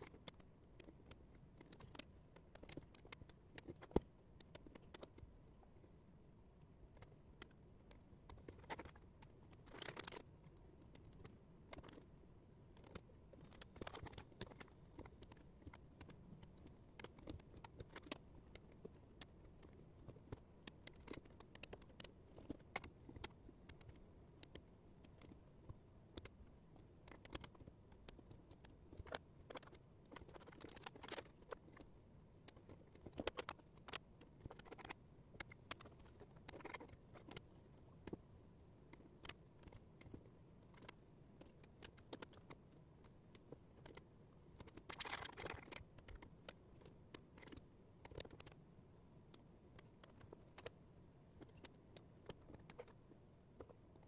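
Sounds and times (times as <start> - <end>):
wooden puzzle pieces clicking: 12.8 - 38.2, 38.9 - 48.6.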